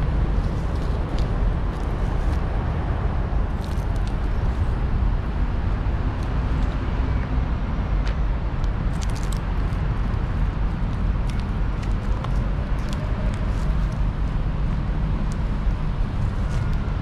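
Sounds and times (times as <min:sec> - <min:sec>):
low city rumble: 0:00.0 - 0:17.0.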